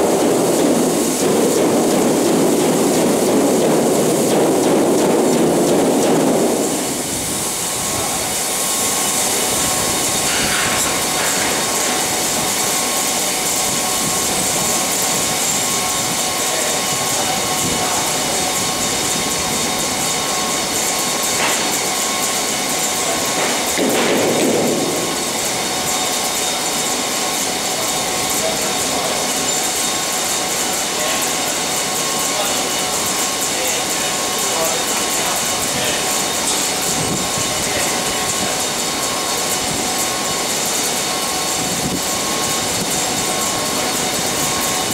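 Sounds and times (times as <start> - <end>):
faint machinery hum: 0.0 - 44.9
grain pouring with steady hiss: 0.0 - 44.9.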